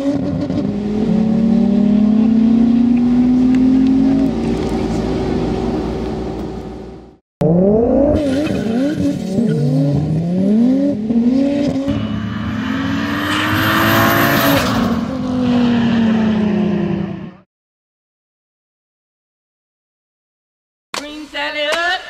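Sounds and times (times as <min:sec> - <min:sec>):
car engine racing: 0:00.0 - 0:17.4.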